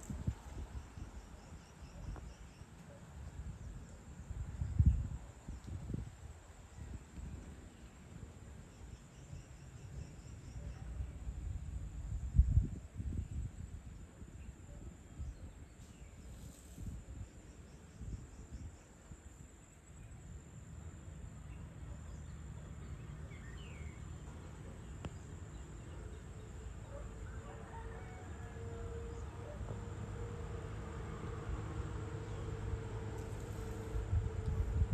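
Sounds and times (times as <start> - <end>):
bird chirp: 21.4 - 27.1.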